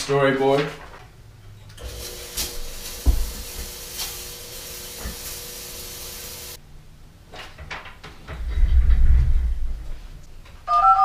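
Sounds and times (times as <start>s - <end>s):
fog machine vapour hiss: 1.8s - 6.6s.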